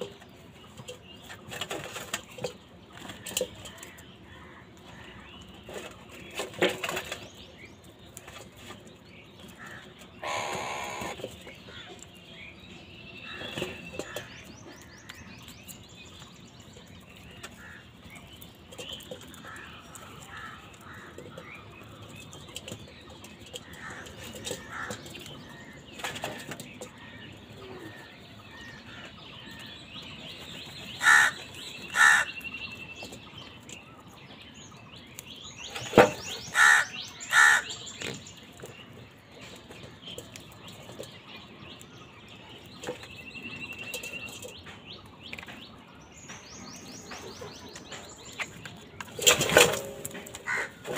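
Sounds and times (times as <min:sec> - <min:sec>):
soft crow calls: 0:09.6 - 0:11.2, 0:31.0 - 0:32.4, 0:36.5 - 0:37.7, 0:50.4 - 0:50.8
crows squabbling: 0:09.6 - 0:12.0, 0:23.6 - 0:29.7, 0:31.0 - 0:32.4, 0:35.7 - 0:38.2, 0:49.7 - 0:50.9
loud harsh caws: 0:10.2 - 0:11.2, 0:31.0 - 0:32.3, 0:36.5 - 0:37.7.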